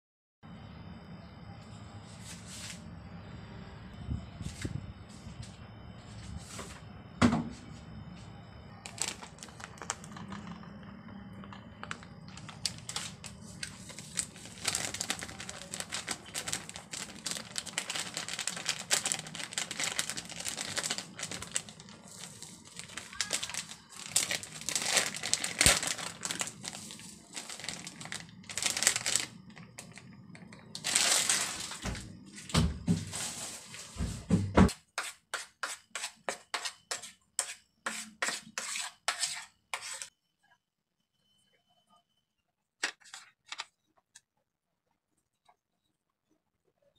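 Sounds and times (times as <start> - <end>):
flour rustling and crinkling: 11.9 - 31.8
fork scraping on plate: 35.0 - 40.1.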